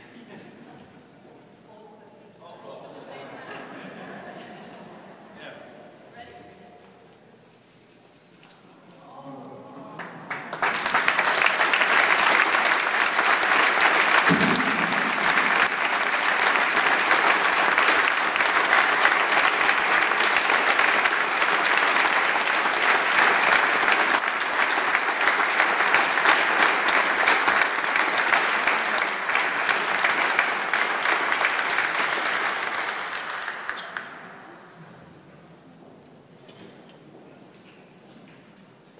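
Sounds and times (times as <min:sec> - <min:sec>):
audience applauding: 0:10.0 - 0:34.6.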